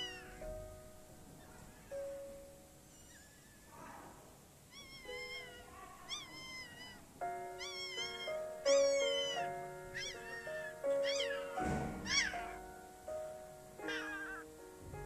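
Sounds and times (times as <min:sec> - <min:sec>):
puppy whimpering: 0:00.0 - 0:00.6, 0:02.8 - 0:03.8, 0:04.7 - 0:12.7, 0:13.8 - 0:14.5
background music with held chords: 0:07.2 - 0:15.0.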